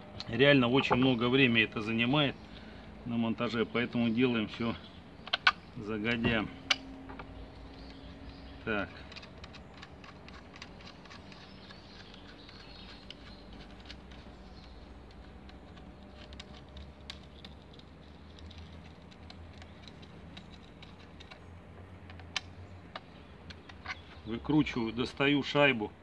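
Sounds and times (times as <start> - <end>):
plastic and metal clicks: 5.2 - 24.2.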